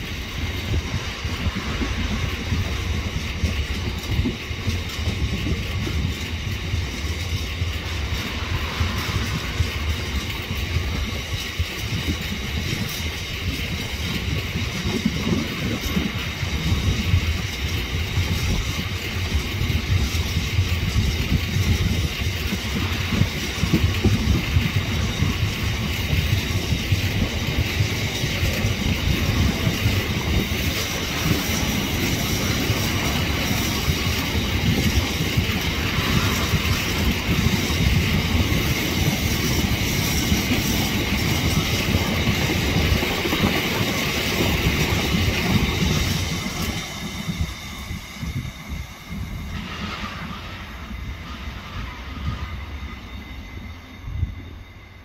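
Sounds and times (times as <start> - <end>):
train wheels rumbling over rails: 0.0 - 55.0.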